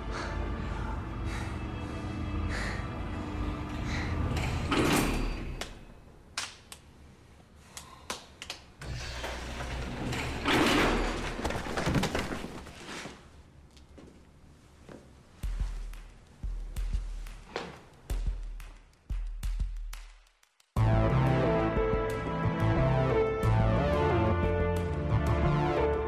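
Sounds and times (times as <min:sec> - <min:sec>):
music: 0:00.0 - 0:05.9, 0:15.4 - 0:26.0
heavy sliding doors rumbling: 0:08.8 - 0:12.4.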